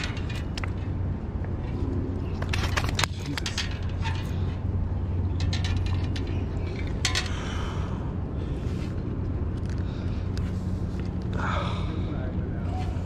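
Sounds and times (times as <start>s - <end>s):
sharp clicks and rustles: 0.0s - 7.4s
steady low hum: 0.0s - 13.0s.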